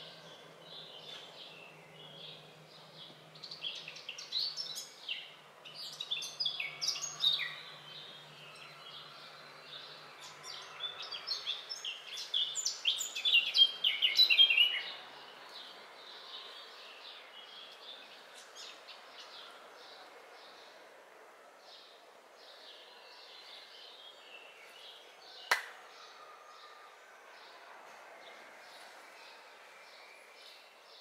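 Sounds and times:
songbird singing: 0.0 - 20.9.

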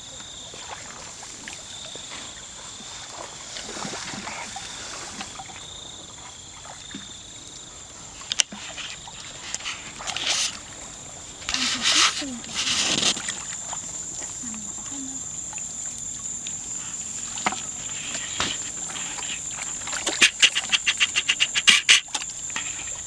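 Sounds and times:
water splashing: 0.0 - 7.2, 8.0 - 23.0
wading through muddy water: 0.0 - 23.0
high-pitched insect drone: 8.2 - 23.0.

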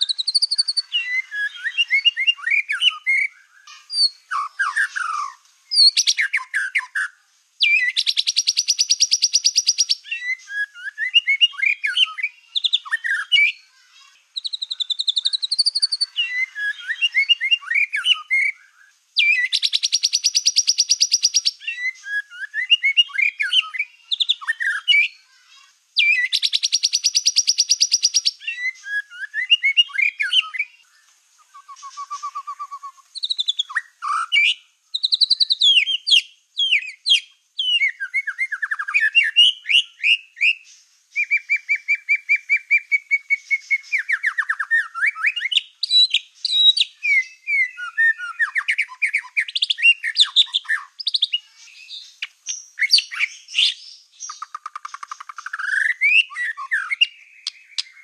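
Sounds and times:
long fast bird trill: 0.0 - 13.6, 14.3 - 18.5, 19.2 - 25.2, 26.0 - 30.7
bird singing whistled phrases: 0.0 - 25.2, 26.0 - 58.0.

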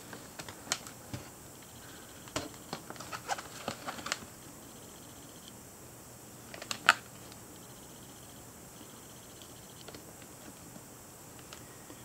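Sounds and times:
plastic packaging crackling: 2.3 - 4.3.

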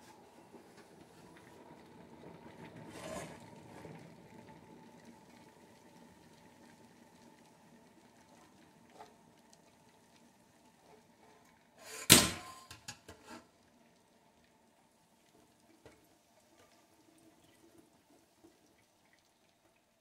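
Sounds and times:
metal clank on steel sink: 11.9 - 13.3.

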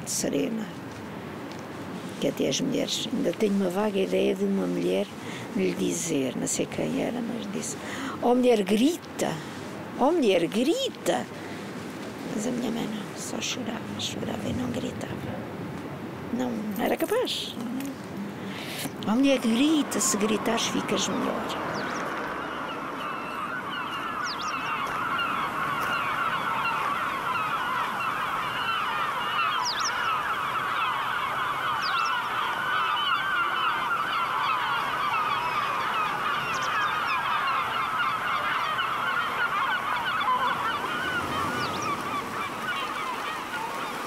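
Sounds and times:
flock of gulls squawking: 18.6 - 44.0.

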